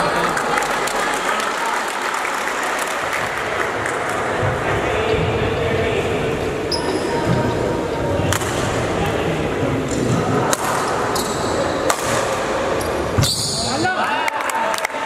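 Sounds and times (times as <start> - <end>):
murmur of spectators: 0.0 - 15.0
racket hitting shuttlecock: 8.3 - 8.8, 10.5 - 11.2, 11.8 - 12.5.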